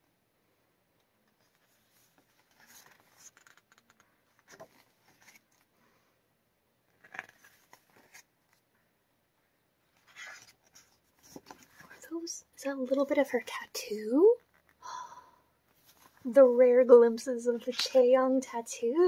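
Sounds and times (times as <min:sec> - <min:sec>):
photo book pages turning: 0:01.3 - 0:05.7, 0:06.9 - 0:08.6, 0:09.9 - 0:12.1.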